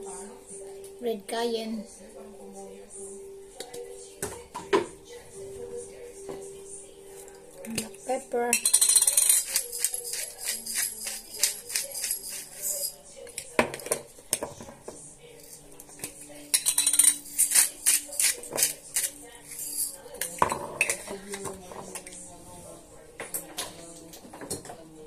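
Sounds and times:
pepper mill grinding: 8.6 - 12.9, 16.6 - 19.9.

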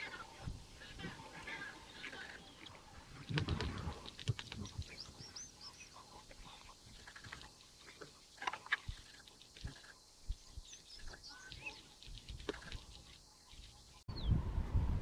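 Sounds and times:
animals tearing and chewing: 6.3 - 10.0.

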